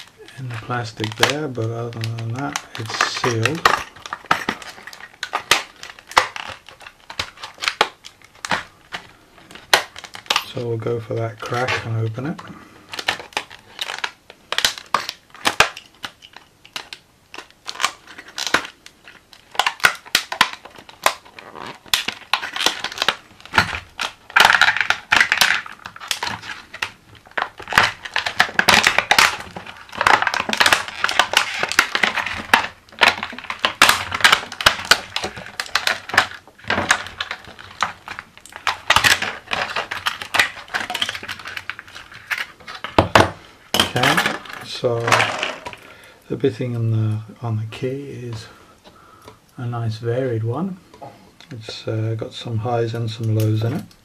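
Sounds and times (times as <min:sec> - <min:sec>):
knife cutting plastic packaging: 0:00.0 - 0:43.2
plastic crackling and tearing: 0:00.0 - 0:54.0.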